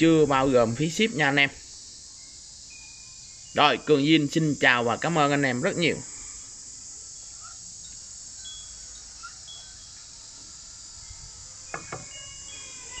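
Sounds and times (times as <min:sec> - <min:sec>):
insect chorus: 0:00.0 - 0:13.0
ceramic pot knocks: 0:11.7 - 0:12.1.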